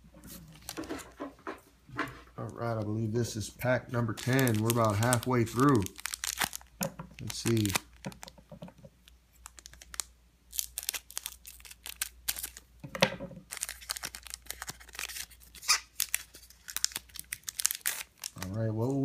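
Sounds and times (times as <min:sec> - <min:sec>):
foil wrapper crinkling and tearing: 0:04.0 - 0:08.4, 0:09.0 - 0:12.7, 0:13.4 - 0:19.0.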